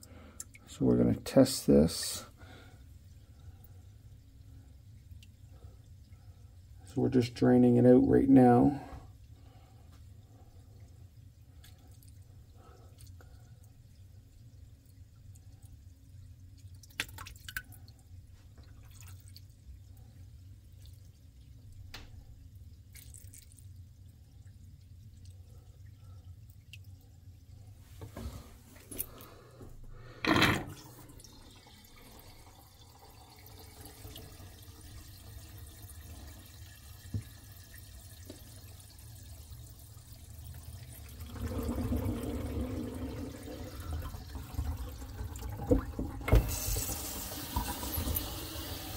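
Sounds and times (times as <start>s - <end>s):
water dripping and trickling: 0.0s - 27.8s, 30.8s - 48.9s
water draining down a sink: 10.2s - 27.4s, 30.0s - 48.9s.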